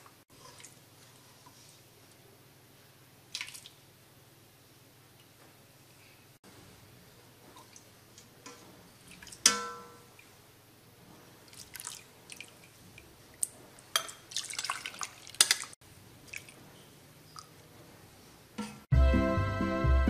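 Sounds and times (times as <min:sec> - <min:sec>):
liquid dripping and pouring: 0:03.3 - 0:03.8, 0:11.5 - 0:16.6
metal ladle clinking in pot: 0:09.4 - 0:10.0.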